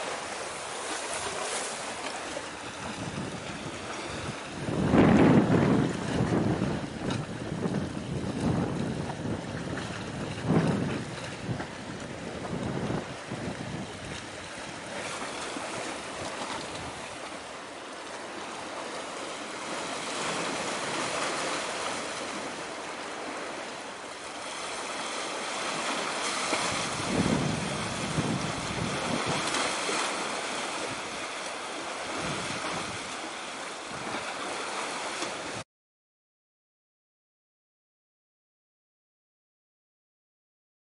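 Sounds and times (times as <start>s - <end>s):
sea waves washing: 0.0s - 35.6s
wind blowing over microphone: 2.2s - 17.3s, 25.8s - 31.4s, 32.0s - 33.2s, 33.8s - 34.3s.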